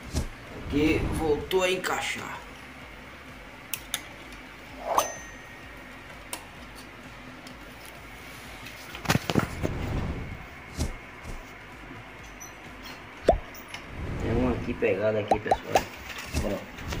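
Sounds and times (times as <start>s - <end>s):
high metallic ping: 4.8s - 5.8s.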